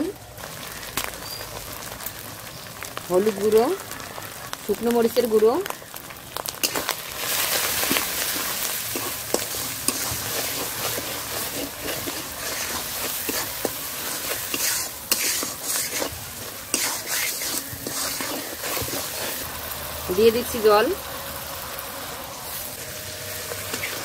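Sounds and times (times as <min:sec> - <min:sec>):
food sizzling in hot oil: 0:00.0 - 0:24.0
spatula scraping pan: 0:06.6 - 0:19.5.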